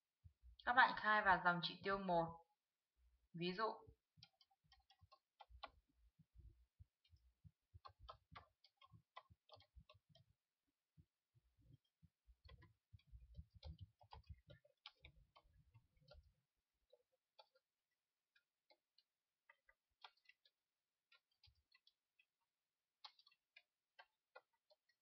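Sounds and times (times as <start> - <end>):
keyboard typing clicks: 12.4 - 16.3.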